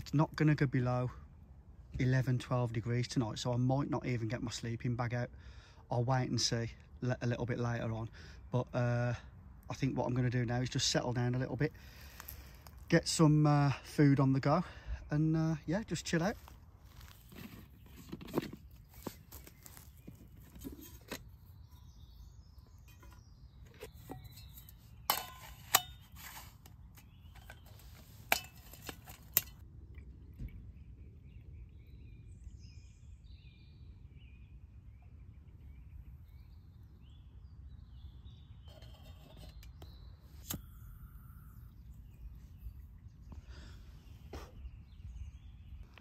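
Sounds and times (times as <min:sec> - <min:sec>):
faint bird chirps: 0:30.6 - 0:46.0.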